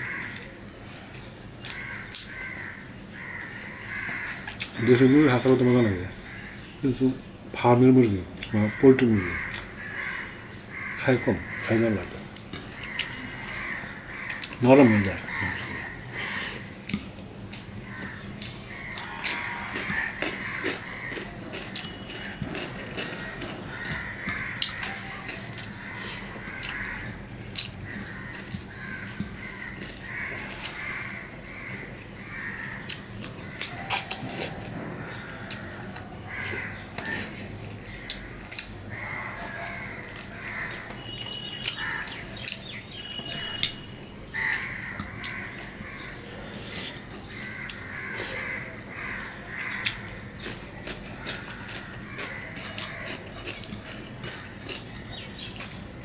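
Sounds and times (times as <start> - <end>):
crows cawing: 0.0 - 0.6, 1.6 - 6.8, 8.5 - 16.8, 17.8 - 55.6
wet chewing and lip smacks: 49.8 - 56.0.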